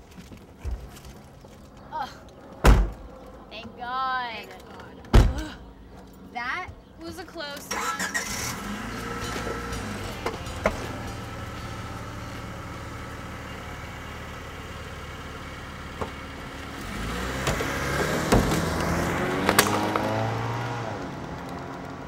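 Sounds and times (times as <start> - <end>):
car engine running: 7.7 - 22.0.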